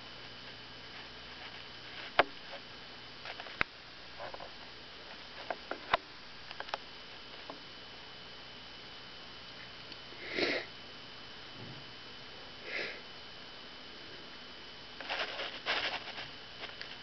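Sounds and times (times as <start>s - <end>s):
hedgehog snuffing: 10.2s - 10.7s, 12.6s - 13.0s.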